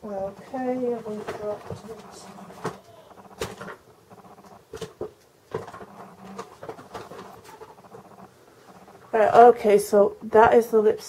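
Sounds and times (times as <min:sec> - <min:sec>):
small clicks and rustles from handling: 0:00.3 - 0:09.1.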